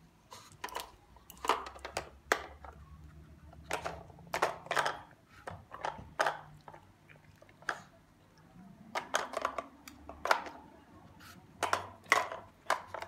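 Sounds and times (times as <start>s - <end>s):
plastic toy clacking and rattling: 0.6s - 2.8s, 3.5s - 6.8s, 8.9s - 10.7s, 11.6s - 13.0s.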